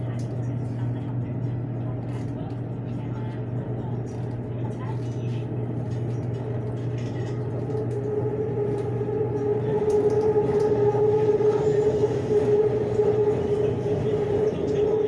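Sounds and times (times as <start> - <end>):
train rumble: 0.0 - 15.0
train motor whine: 7.4 - 15.0.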